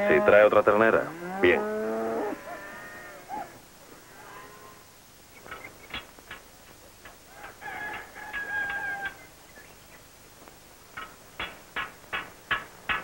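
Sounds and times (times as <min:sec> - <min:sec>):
hens clucking: 0:00.0 - 0:13.0
rooster crowing: 0:07.3 - 0:09.3.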